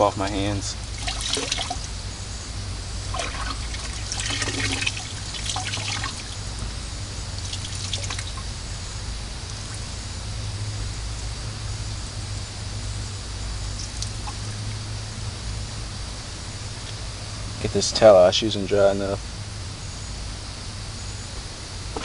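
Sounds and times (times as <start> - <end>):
constant low hum: 0.0 - 22.0
water splashes: 0.9 - 1.9, 3.1 - 6.4, 7.4 - 8.5
running water rinsing hands: 3.2 - 6.3.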